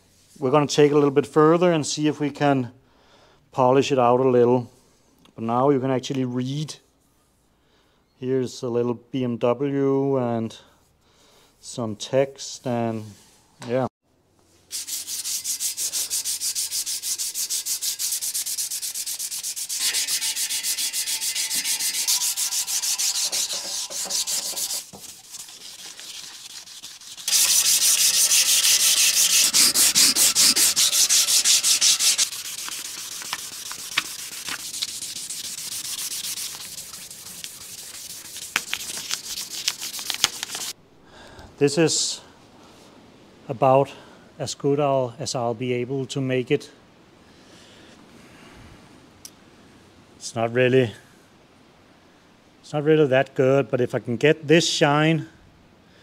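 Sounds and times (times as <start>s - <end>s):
sandpaper rubbing on metal: 14.7s - 40.8s.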